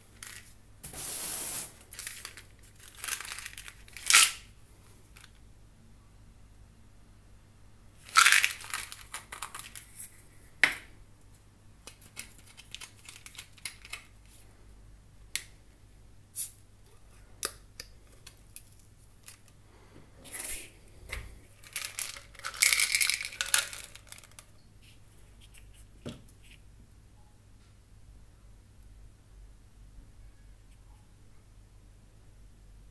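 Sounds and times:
plastic packaging crinkling and tearing: 1.9 - 4.5, 8.0 - 10.0, 21.6 - 24.5.

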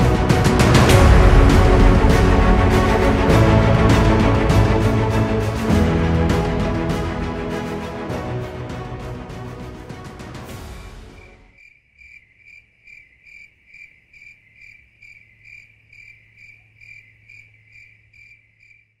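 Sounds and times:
background music: 0.0 - 11.6
cricket chirping: 11.0 - 19.0.

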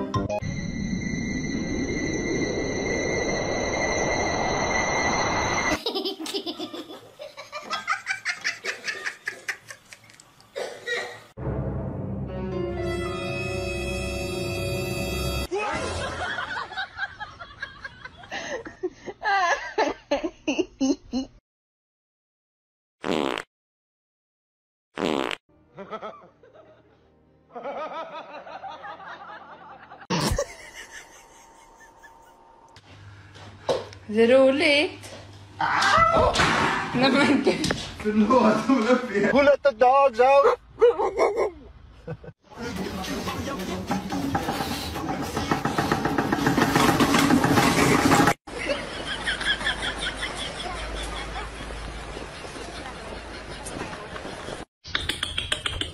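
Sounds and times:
music: 0.0 - 0.8, 11.4 - 15.5, 25.5 - 27.6, 42.6 - 45.6
laughter in bursts: 5.8 - 10.0, 15.8 - 21.3, 25.7 - 32.5, 40.8 - 42.4, 48.5 - 54.6
person laughing in bursts: 29.9 - 32.6.

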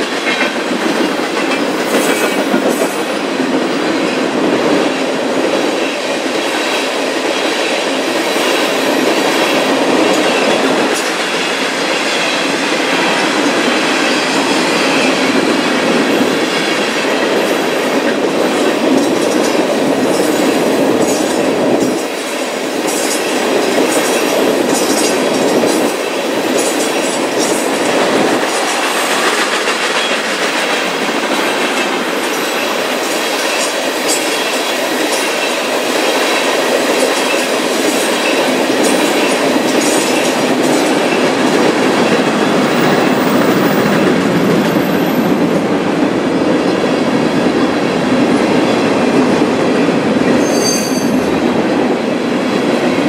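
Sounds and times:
train wheels running on rails: 0.0 - 53.0
wheels clicking over rail joints: 15.3 - 45.6.

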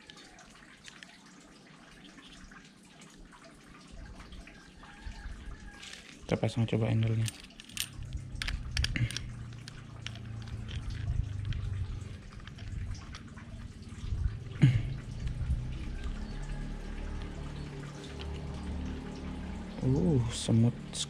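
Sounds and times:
fishing reel handling noise: 5.8 - 6.2, 7.0 - 13.3.

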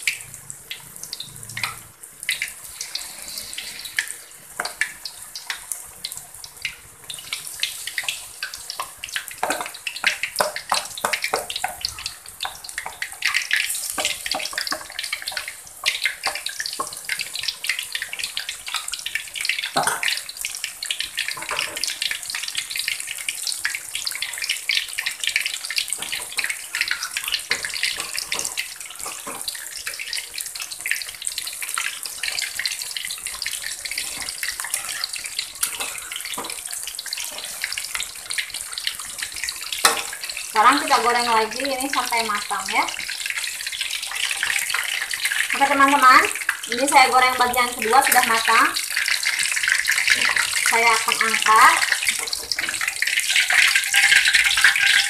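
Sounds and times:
fritters deep-frying in oil: 0.0 - 55.0.

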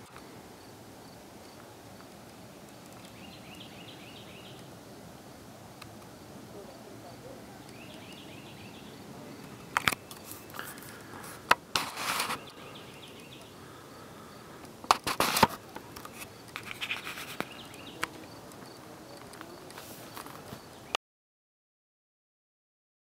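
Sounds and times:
scratchy clicks and scrapes: 9.8 - 12.6, 14.9 - 20.6.

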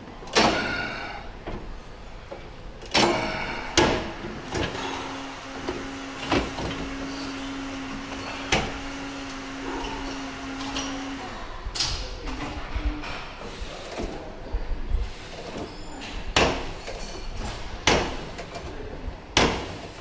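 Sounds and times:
weight stack clanking: 0.0 - 5.2
steady low hum: 0.0 - 20.0.

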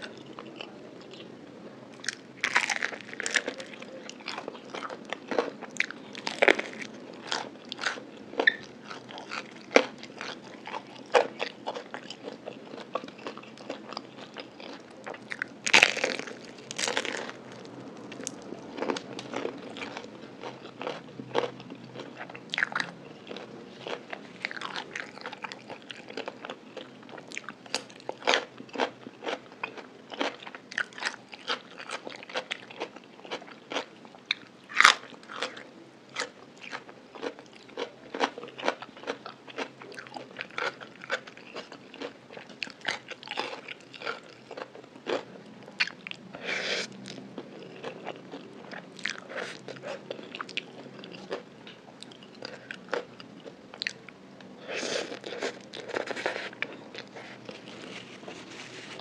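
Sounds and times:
chewing crispy fried food: 0.0 - 59.0.

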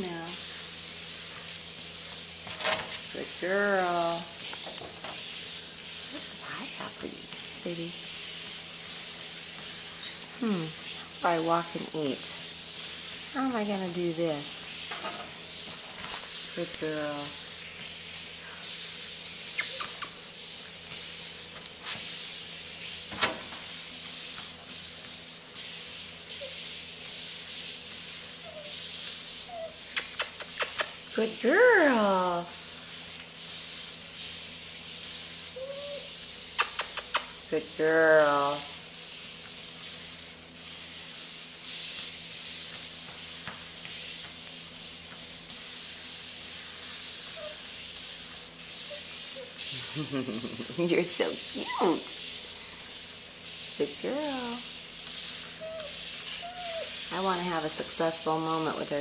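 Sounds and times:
puppy paws clicking on belt: 0.0 - 5.2, 6.0 - 26.6, 28.4 - 46.4
treadmill motor humming: 37.3 - 59.0.

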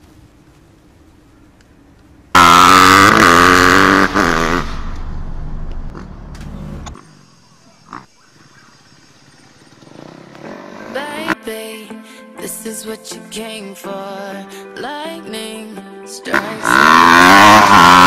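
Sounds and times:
dirt bike engine at high revs: 2.4 - 7.0, 9.3 - 11.3, 16.3 - 18.0.

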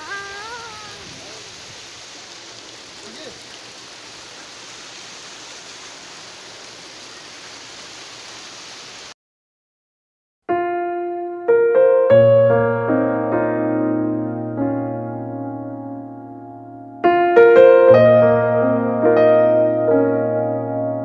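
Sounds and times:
fountain jets splashing into pool: 0.0 - 9.1.

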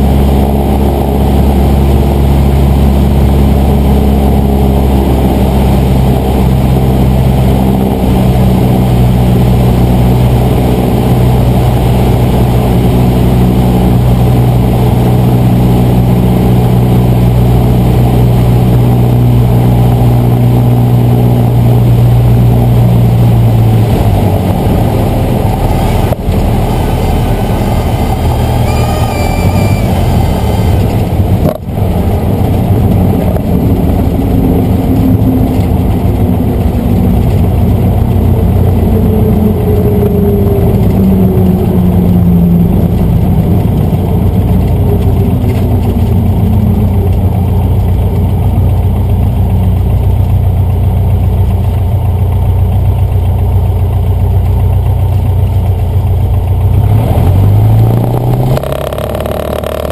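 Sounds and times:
rushing air noise: 0.0 - 49.0
airplane engine and propeller: 0.0 - 59.9
short high whine: 24.8 - 31.2.

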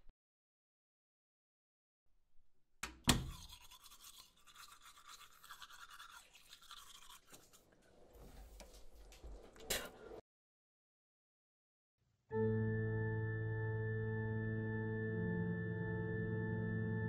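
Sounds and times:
fast scratchy rasping: 3.3 - 7.6.

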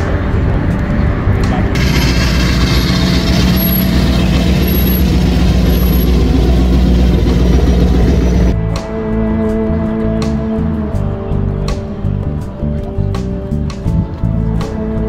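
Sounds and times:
car engine loud exhaust note: 1.7 - 8.6.

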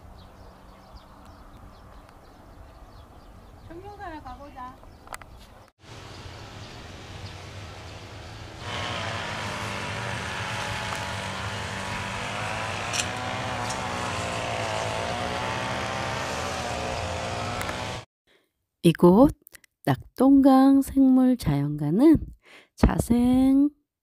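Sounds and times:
motor droning hum: 5.8 - 18.0.

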